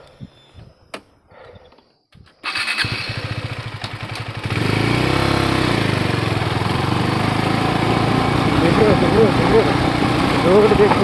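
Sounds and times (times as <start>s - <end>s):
motorcycle engine revving: 2.4s - 11.0s.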